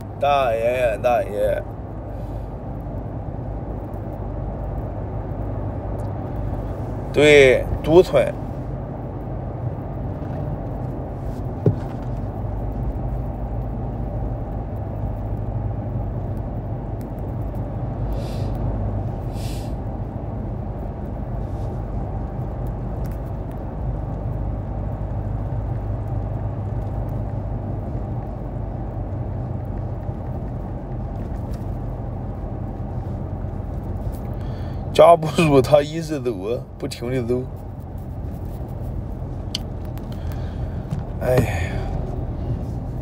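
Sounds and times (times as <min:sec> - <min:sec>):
car interior rumble: 0:00.0 - 0:43.0.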